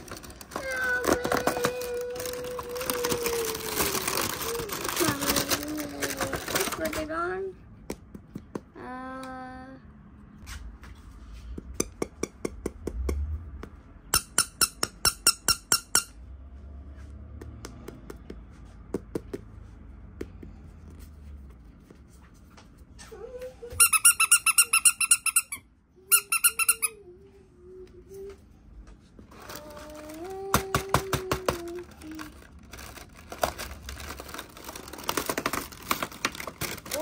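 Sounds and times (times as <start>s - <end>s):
toy squeaking: 14.1s - 16.2s, 23.7s - 27.1s.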